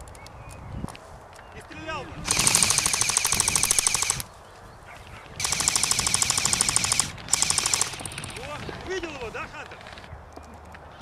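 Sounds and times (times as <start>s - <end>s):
airsoft rifle firing bursts: 2.3s - 4.3s, 5.4s - 8.6s.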